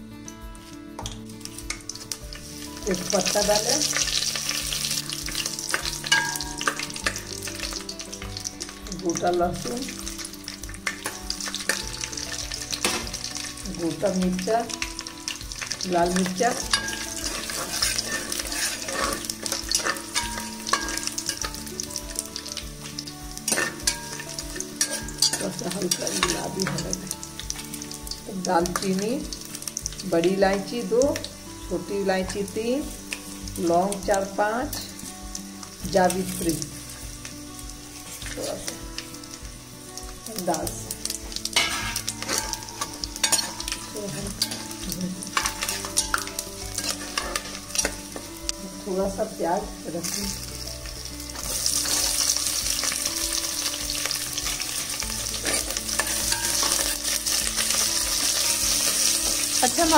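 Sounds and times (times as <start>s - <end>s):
spices sizzling in hot oil: 0.0s - 59.9s
metal ladle scraping pot: 16.5s - 21.5s, 23.5s - 27.0s, 41.6s - 48.0s.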